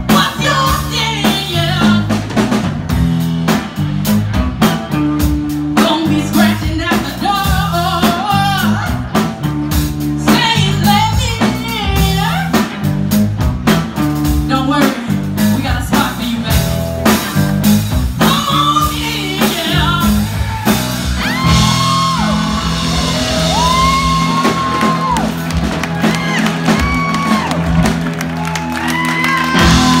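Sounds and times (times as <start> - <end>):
person singing lead vocals: 0.0 - 2.2, 5.8 - 9.2, 14.4 - 16.9, 18.2 - 25.2
bass guitar: 0.0 - 30.0
drum kit: 0.0 - 30.0
electric guitar: 0.0 - 30.0.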